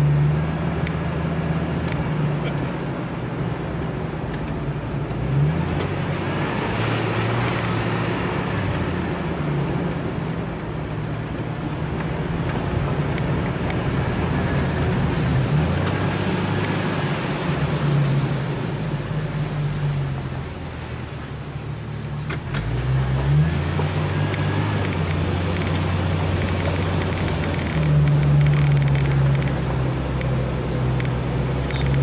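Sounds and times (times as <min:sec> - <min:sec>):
car engine running at low revs: 0:00.0 - 0:32.0
light ticks and rattles: 0:09.9 - 0:15.0, 0:24.3 - 0:32.0.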